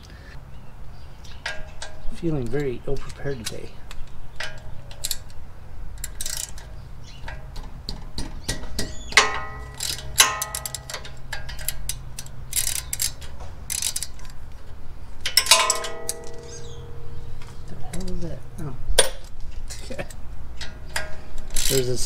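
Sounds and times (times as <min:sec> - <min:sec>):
hand ratchet clicking: 0:06.0 - 0:14.3, 0:20.6 - 0:22.0
steel sockets clinking: 0:08.5 - 0:14.4, 0:15.2 - 0:18.2, 0:19.0 - 0:22.0.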